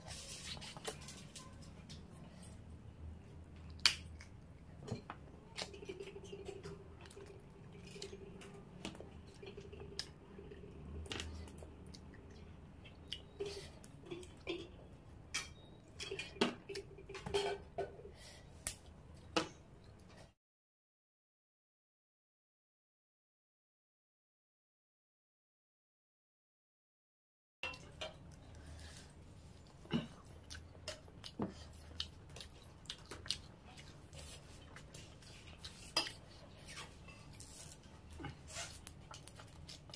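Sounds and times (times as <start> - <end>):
wet chewing: 29.7 - 39.9.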